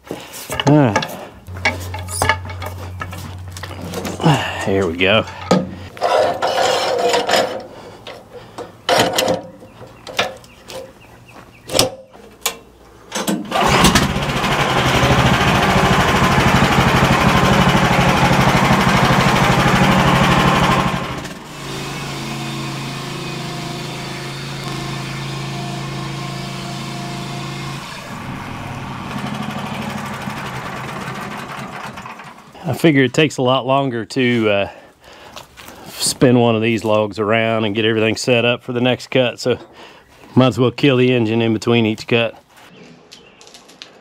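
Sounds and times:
gasoline engine running: 0:01.4 - 0:05.9, 0:13.5 - 0:32.7.

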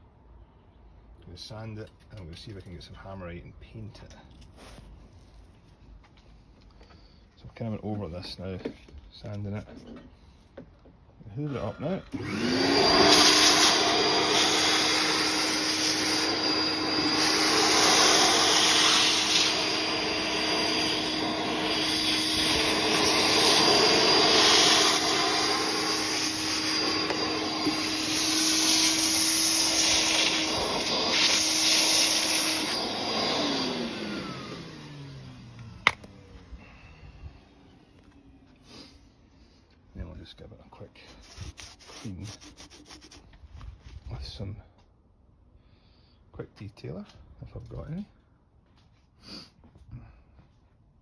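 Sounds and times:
vacuum motor winding down: 0:12.1 - 0:38.9
vacuum cleaner suction: 0:12.1 - 0:39.0, 0:41.1 - 0:43.4.

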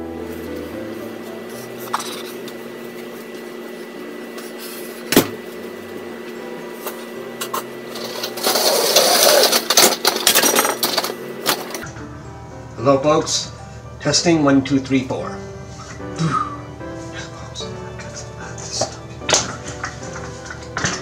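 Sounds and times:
electrical hum: 0:00.0 - 0:21.0
objects clattering: 0:06.9 - 0:12.0, 0:18.0 - 0:21.0.

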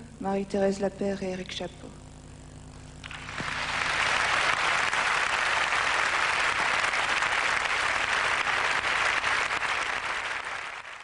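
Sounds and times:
large audience applauding: 0:03.0 - 0:11.0.

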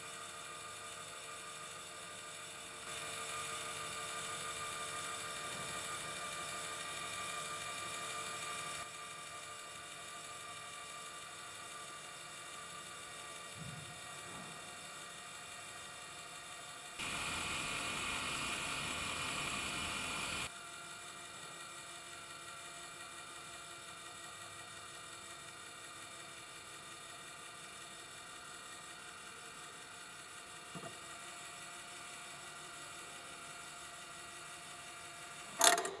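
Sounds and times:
door mechanism whirring: 0:35.5 - 0:36.0.

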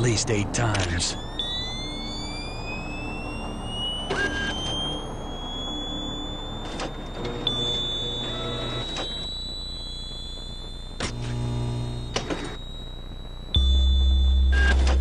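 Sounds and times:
low electronic hum: 0:00.0 - 0:15.0
thin high rising tone: 0:00.9 - 0:11.0.

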